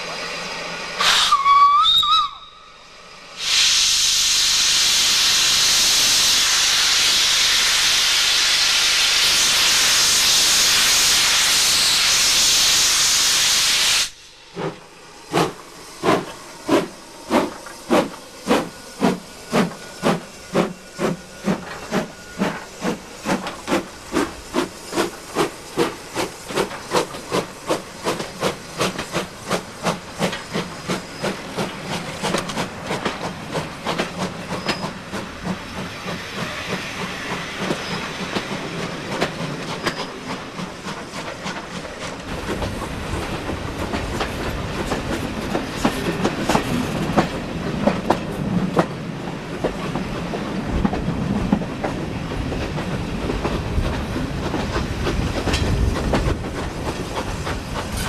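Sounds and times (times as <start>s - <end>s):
steam hissing: 0.0s - 50.7s
steam locomotive whistle: 1.0s - 14.2s
steam locomotive exhaust chuffing: 3.2s - 58.0s.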